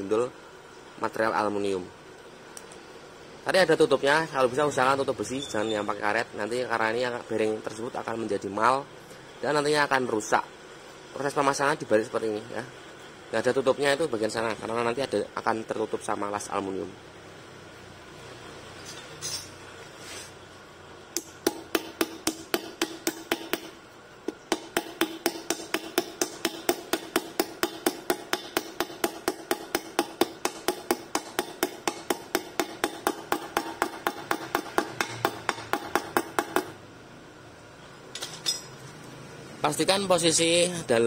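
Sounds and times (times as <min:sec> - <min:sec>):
hammer tapping on metal pipe: 0:21.2 - 0:23.7, 0:24.3 - 0:36.7.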